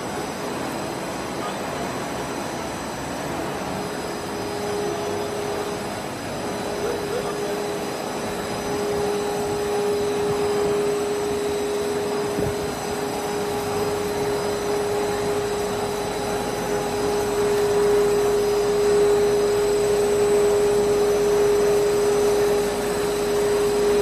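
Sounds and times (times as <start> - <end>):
machine drone with hum tone: 0.0 - 24.0.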